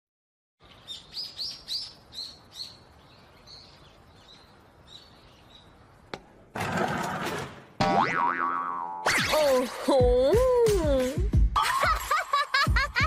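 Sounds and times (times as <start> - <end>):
small birds chirping: 0.6 - 6.1.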